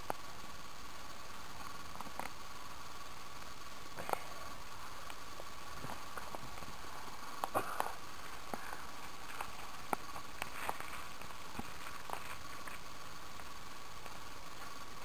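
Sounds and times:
campfire crackling: 0:00.0 - 0:15.0
steady hiss: 0:00.0 - 0:15.0
foil rustling: 0:04.3 - 0:15.0.

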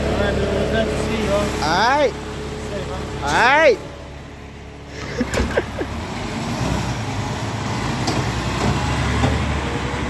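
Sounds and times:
diesel truck engine running: 0:00.0 - 0:10.0.

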